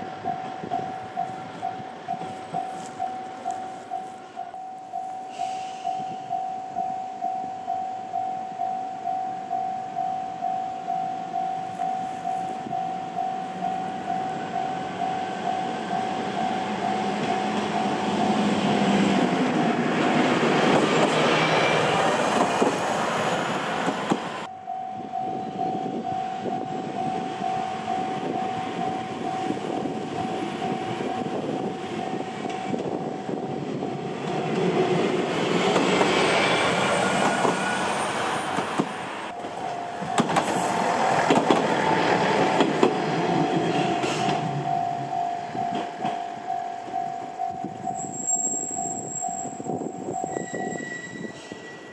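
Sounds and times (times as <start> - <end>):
level-crossing warning bell ringing: 0.0 - 19.4, 24.4 - 33.3, 39.3 - 41.0, 43.4 - 51.9
railcar engine and wheel noise: 0.0 - 51.9.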